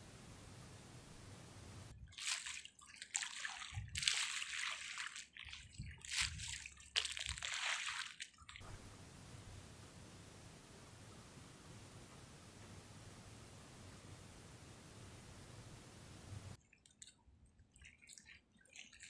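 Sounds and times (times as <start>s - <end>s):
sea water splashing against seawall: 2.0s - 9.6s.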